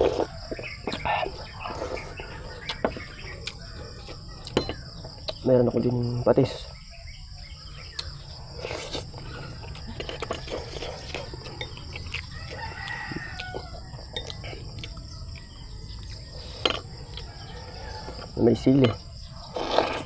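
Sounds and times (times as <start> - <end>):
rooster crowing: 0.0 - 4.5, 9.3 - 16.0, 16.9 - 19.6
high insect drone: 0.0 - 20.0.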